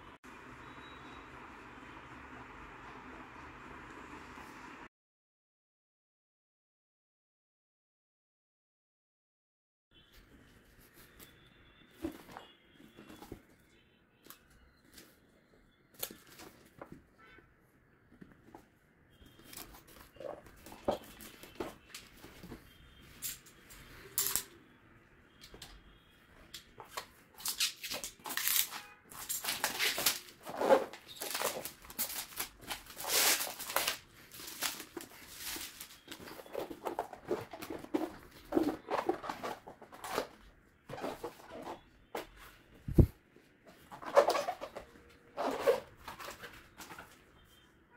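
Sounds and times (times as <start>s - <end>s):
shrink-wrap tearing and crinkling: 27.4s - 40.3s
cardboard flaps rustling: 29.4s - 43.1s.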